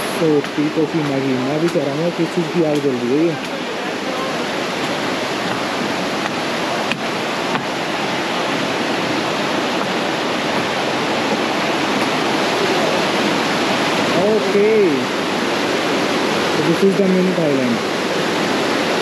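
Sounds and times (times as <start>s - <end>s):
stream rushing over boulders: 0.0s - 19.0s.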